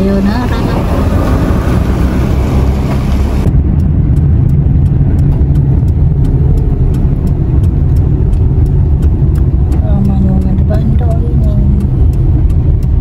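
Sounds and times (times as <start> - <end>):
car engine and road noise: 0.0 - 13.0
light regular ticking: 0.0 - 13.0.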